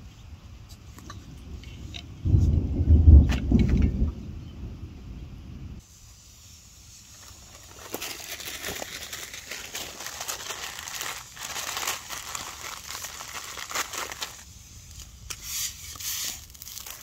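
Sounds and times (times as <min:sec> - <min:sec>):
campfire crackle: 0:06.1 - 0:17.0
plastic packet crinkling: 0:07.1 - 0:15.1, 0:16.2 - 0:17.0.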